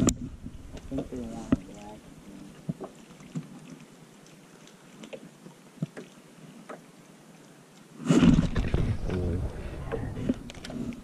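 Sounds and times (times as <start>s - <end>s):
waves lapping against hull: 0.0s - 11.0s
loud rushing rumble: 8.6s - 11.0s.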